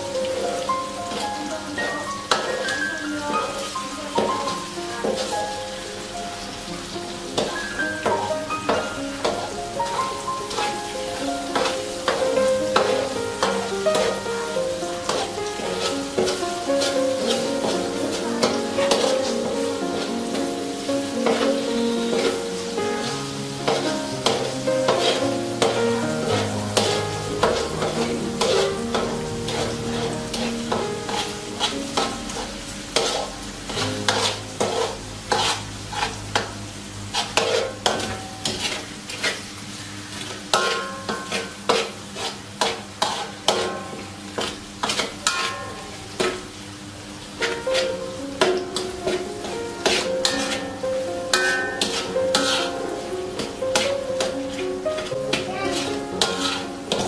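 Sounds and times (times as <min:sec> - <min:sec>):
food sizzling: 0:00.0 - 0:57.0
spatula scraping a wok: 0:01.1 - 0:01.4, 0:10.5 - 0:46.6, 0:47.4 - 0:57.0.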